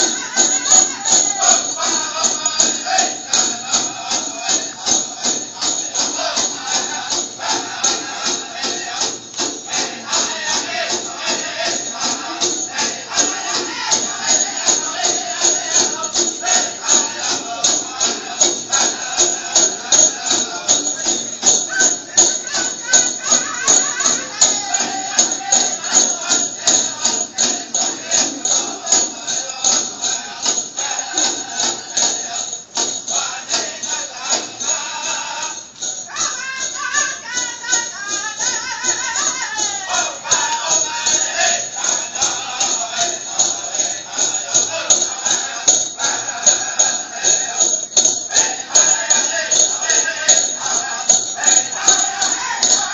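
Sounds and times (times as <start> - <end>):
fast drum beat: 0.0 - 32.4, 36.6 - 52.9
bells jingling: 0.0 - 52.9
people singing: 0.0 - 52.9.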